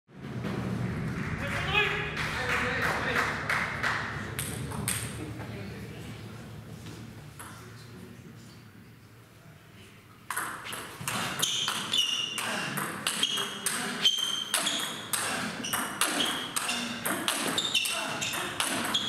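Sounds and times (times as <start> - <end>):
table tennis ball rally: 10.3 - 19.0.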